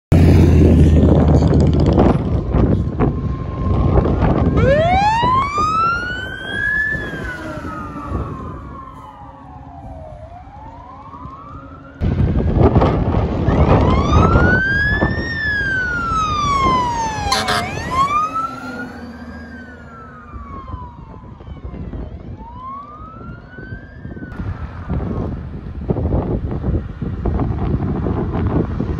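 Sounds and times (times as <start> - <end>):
vehicle and wind rumble: 0.1 - 28.9
fire truck sirens wailing: 0.6 - 24.4
short siren blast: 4.5 - 11.0, 15.8 - 22.0.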